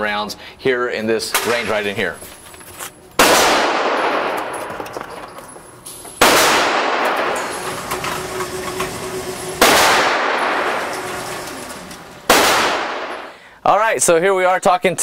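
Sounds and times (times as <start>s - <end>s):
gunshots ringing indoors: 3.2s - 5.2s, 6.2s - 7.7s, 9.6s - 11.6s, 12.2s - 13.4s
target carrier motor hum: 6.9s - 13.3s.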